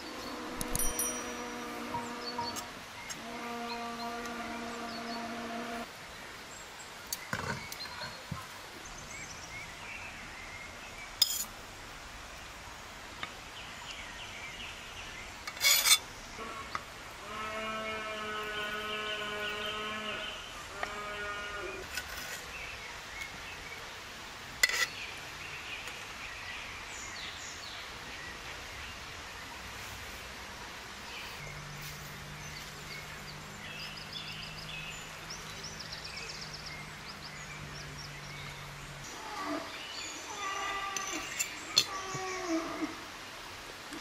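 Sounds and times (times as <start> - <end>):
metal spatula clinking on plate: 0.6 - 1.4, 11.2 - 11.5.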